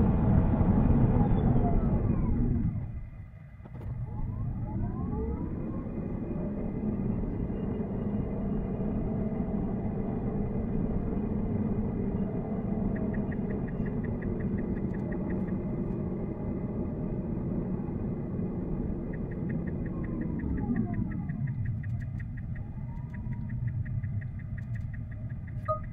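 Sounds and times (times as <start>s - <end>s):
road rumble inside car cabin: 0.0s - 25.9s
turn signal indicator ticking: 19.1s - 25.9s.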